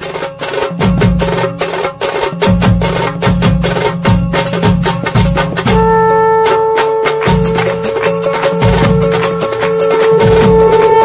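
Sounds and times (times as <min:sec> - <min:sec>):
deep drum beat: 0:00.0 - 0:11.0
drums in quick rhythm: 0:00.0 - 0:11.0.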